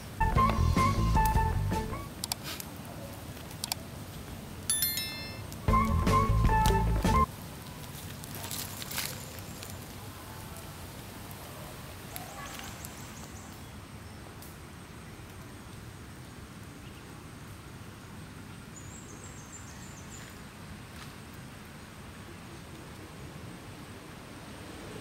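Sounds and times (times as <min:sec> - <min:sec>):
high chirps: 0:00.0 - 0:02.1, 0:04.7 - 0:07.3
outdoor background noise: 0:00.0 - 0:25.0
faint clicks: 0:03.4 - 0:03.8.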